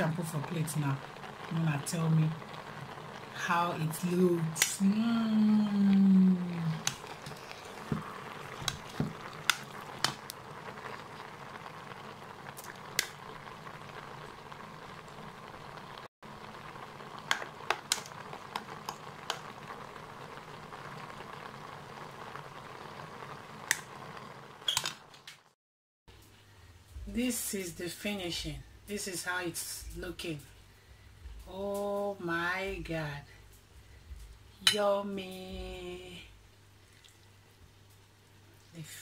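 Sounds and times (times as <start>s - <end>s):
spaghetti sizzling in a pan: 0.0s - 25.6s.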